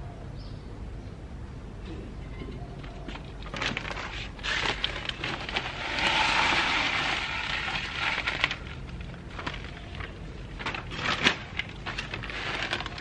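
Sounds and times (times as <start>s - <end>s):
plastic bag rustling and crinkling: 2.8s - 13.0s.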